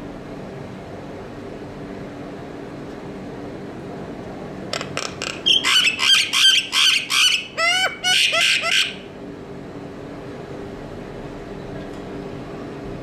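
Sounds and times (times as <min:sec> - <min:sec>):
myna harsh chattering calls: 0:05.2 - 0:09.1.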